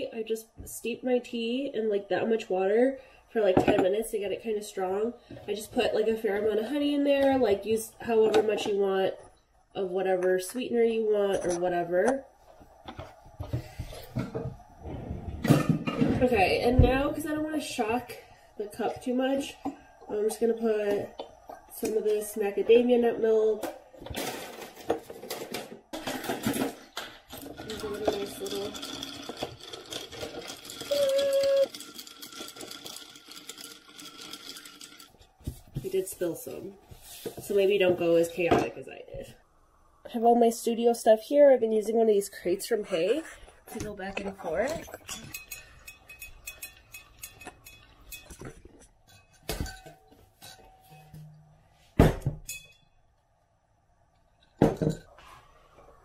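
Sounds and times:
metal straw clinking in glass jar: 0:44.8 - 0:48.4.

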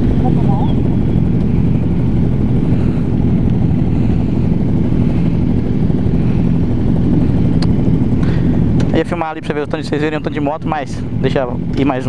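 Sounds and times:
motorcycle engines idling: 0:00.0 - 0:12.0.

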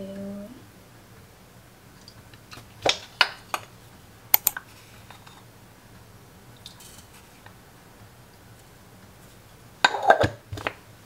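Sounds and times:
kitchen items clicking and knocking: 0:09.9 - 0:10.8.

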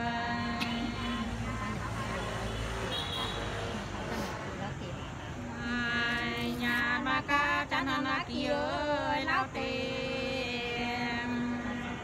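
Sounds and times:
person singing unaccompanied: 0:00.0 - 0:02.5, 0:05.4 - 0:12.0.

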